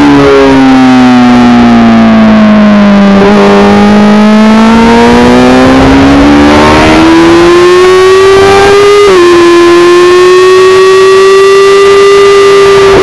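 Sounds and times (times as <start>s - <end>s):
motorcycle engine revving: 0.0s - 13.0s
wind rush: 4.8s - 7.5s.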